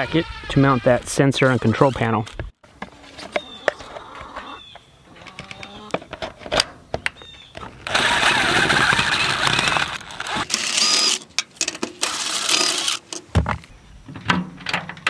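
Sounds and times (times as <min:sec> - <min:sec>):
cordless driver driving screws: 0:07.6 - 0:13.3.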